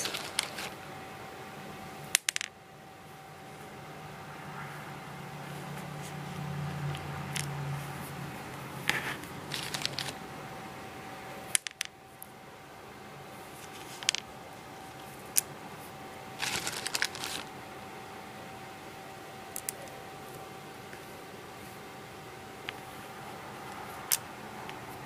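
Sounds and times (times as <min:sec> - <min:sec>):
plastic beads clicking: 0:00.0 - 0:00.8, 0:02.1 - 0:02.5, 0:08.9 - 0:10.2, 0:11.5 - 0:11.9, 0:16.4 - 0:17.5
faint high-pitched hum: 0:00.0 - 0:25.0.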